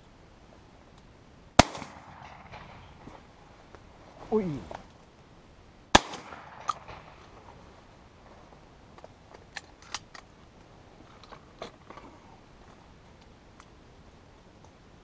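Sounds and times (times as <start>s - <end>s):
shotgun shot: 1.6s - 3.0s, 5.9s - 7.2s
shotgun reloading clicks: 6.0s - 7.1s, 9.5s - 10.3s.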